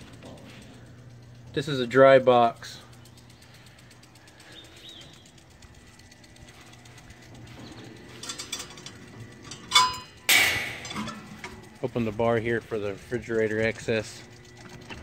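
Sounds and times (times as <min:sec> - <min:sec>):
metal latch rattles and clicks: 0:07.5 - 0:11.7
sharp metal clank: 0:09.6 - 0:11.6.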